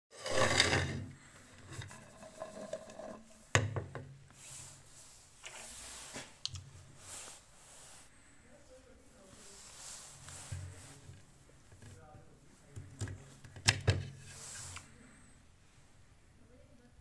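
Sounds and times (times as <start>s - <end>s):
plate scraping on table: 0.1s - 3.4s.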